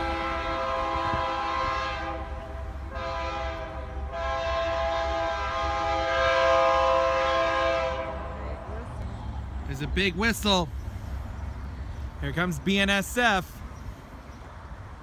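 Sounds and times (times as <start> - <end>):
locomotive air horn chord: 0.0 - 8.4
low rumble of approaching train: 0.0 - 15.0.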